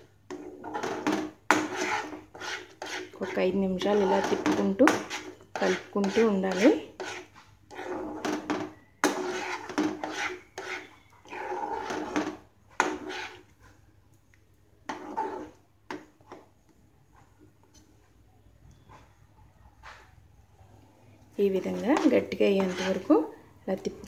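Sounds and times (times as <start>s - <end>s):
spatula scraping a pan: 0.0s - 13.8s, 14.9s - 16.5s, 21.4s - 23.3s.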